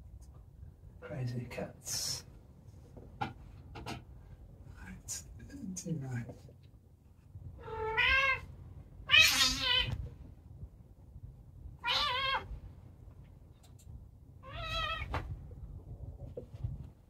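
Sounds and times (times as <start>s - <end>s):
cat yowling: 7.6s - 8.5s, 9.1s - 10.0s, 11.8s - 12.5s, 14.4s - 15.1s.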